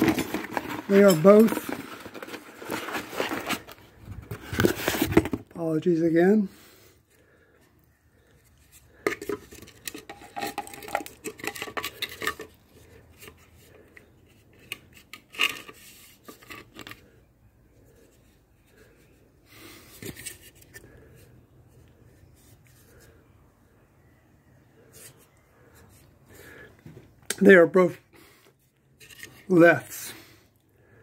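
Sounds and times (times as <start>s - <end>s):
plastic parts clicking and rattling: 0.0s - 5.4s, 8.7s - 17.1s.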